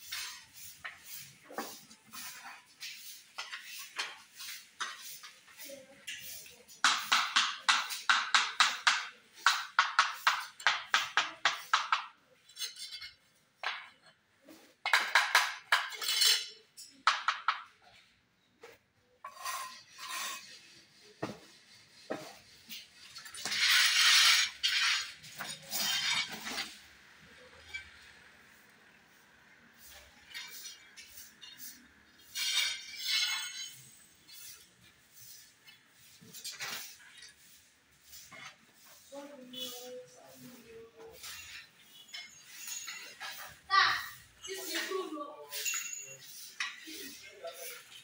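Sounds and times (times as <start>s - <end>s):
trowel scraping mortar on tiles: 0.0s - 18.1s, 19.2s - 28.8s, 29.7s - 48.0s.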